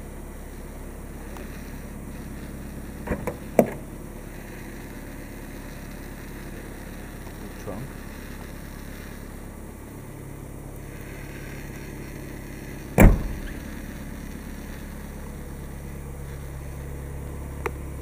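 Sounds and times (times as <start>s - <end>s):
steady low hum: 0.0s - 18.0s
car trunk lid shutting: 3.0s - 3.8s, 13.0s - 13.6s.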